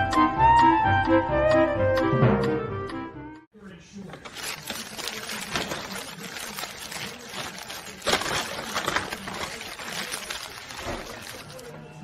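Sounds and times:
paper bag rustling and crinkling: 0:04.0 - 0:12.0.

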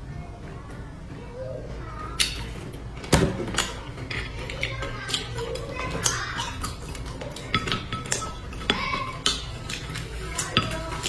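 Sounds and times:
tableware clicking and knocking: 0:02.2 - 0:11.0.

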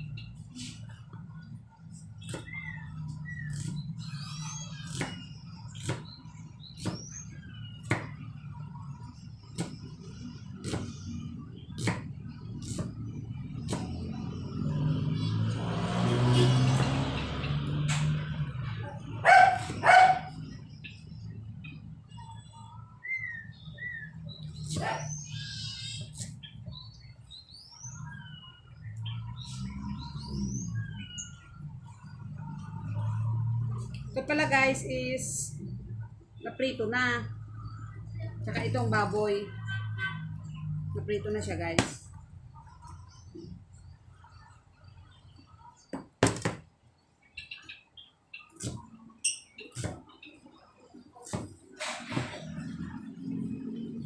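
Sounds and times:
small birds chirping: 0:00.0 - 0:33.2, 0:40.3 - 0:51.8
bird trill: 0:47.3 - 0:50.4.

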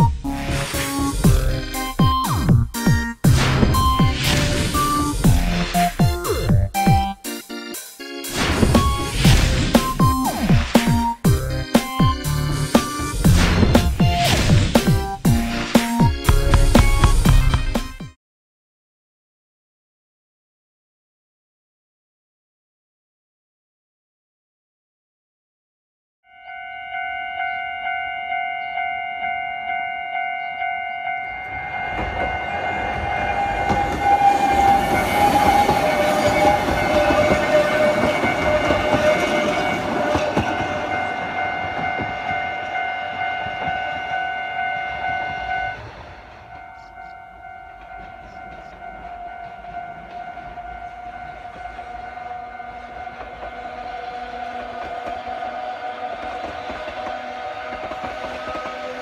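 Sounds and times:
electric train rushing past: 0:00.0 - 0:07.4, 0:08.2 - 0:18.0, 0:27.9 - 0:59.0
level crossing bell ringing: 0:26.3 - 0:34.0, 0:46.5 - 0:53.3
rail clatter: 0:31.4 - 0:59.0.

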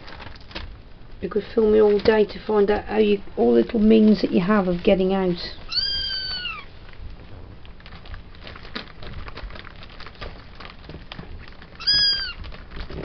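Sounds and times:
kitten scratching and rustling: 0:03.8 - 0:13.0
kitten meowing: 0:05.7 - 0:06.7, 0:11.8 - 0:12.4.

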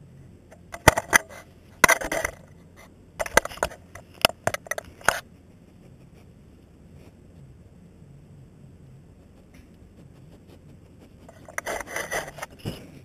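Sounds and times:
scraping rustle: 0:09.3 - 0:13.0.

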